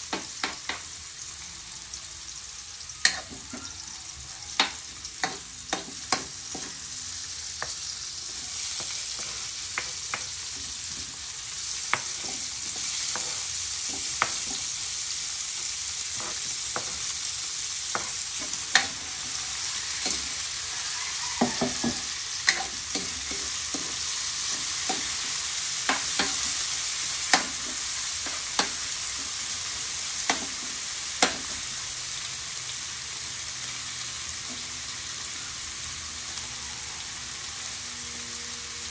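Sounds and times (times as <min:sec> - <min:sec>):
food sizzling in a wok: 0:00.0 - 0:38.9
spoon scraping and knocking wok: 0:04.5 - 0:31.6.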